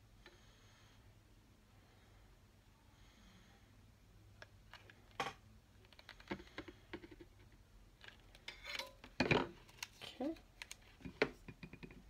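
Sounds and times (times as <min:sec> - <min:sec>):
glue gun and ribbon clicks and rustles: 0:09.6 - 0:11.2.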